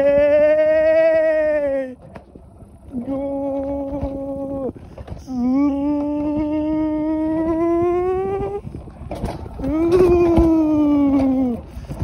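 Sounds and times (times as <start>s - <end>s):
coaster sled rumbling on track: 0.0s - 12.0s
person humming long notes: 2.9s - 8.6s, 9.6s - 11.7s.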